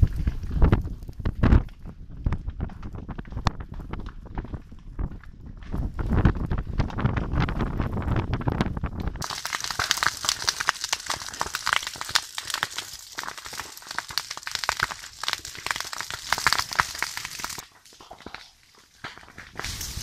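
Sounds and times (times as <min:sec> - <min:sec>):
burning stalks crackling and popping: 0:00.0 - 0:20.0
flame hiss: 0:19.6 - 0:20.0.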